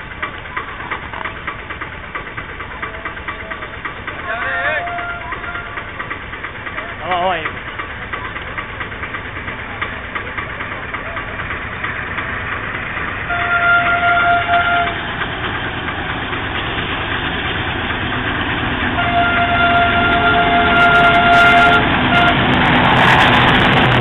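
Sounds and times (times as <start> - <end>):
train engine rumble: 0.0 - 24.0
train horn blast: 4.4 - 5.8, 13.3 - 15.0, 18.9 - 22.7.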